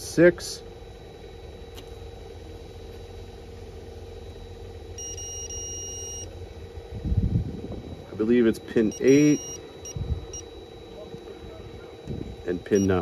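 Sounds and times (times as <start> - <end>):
low hum: 0.0 - 13.0
multimeter high beep: 4.2 - 6.6, 7.5 - 13.0.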